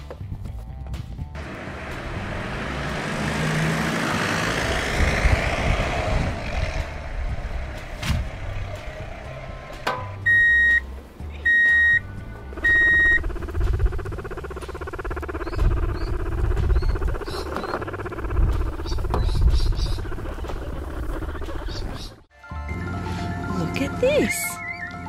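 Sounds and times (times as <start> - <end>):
reversing beeps: 10.3 - 10.8, 11.4 - 12.0, 12.6 - 13.2.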